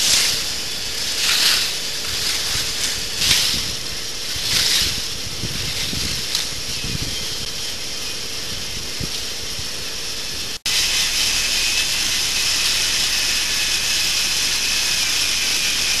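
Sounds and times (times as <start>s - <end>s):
toy roller coaster chain lift whirring: 0.0s - 7.2s, 10.7s - 16.0s.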